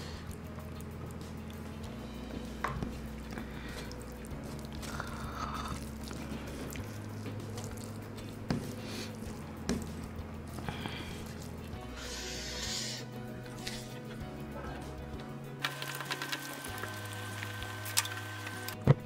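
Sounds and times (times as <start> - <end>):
chewing: 3.2 - 9.8
fingers squishing rice: 3.2 - 13.0.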